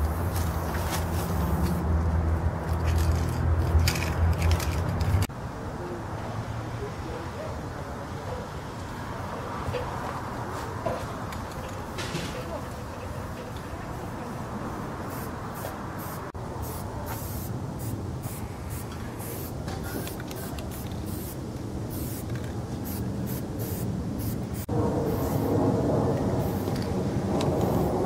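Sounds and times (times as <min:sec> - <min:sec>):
spray can hissing in bursts: 0:15.1 - 0:25.5.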